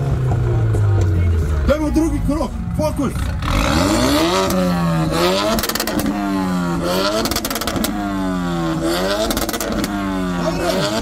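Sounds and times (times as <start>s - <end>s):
car engine revving: 0.0s - 11.0s
exhaust pops crackling: 5.2s - 10.0s.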